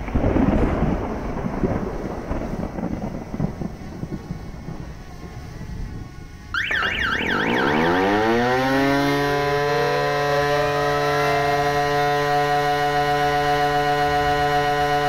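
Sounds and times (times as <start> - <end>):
siren winding up and howling: 6.6 - 15.0.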